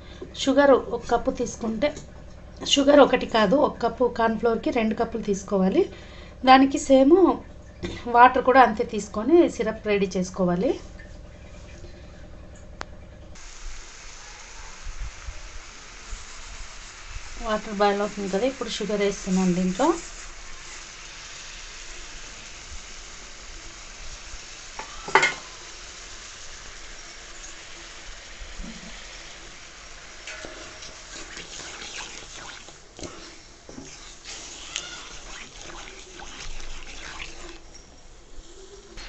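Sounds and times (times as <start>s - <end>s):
boiling sugar water hissing: 13.4s - 39.0s
wooden spatula stirring and scraping: 16.2s - 21.0s, 30.3s - 37.7s.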